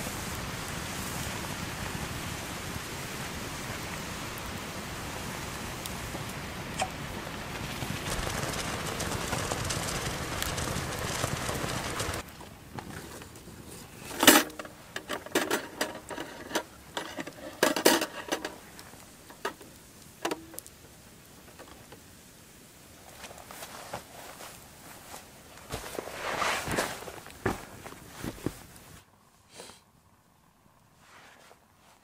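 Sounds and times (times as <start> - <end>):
rice boiling with loud hiss: 0.0 - 32.0
metal pot and grill clanking: 12.8 - 19.6.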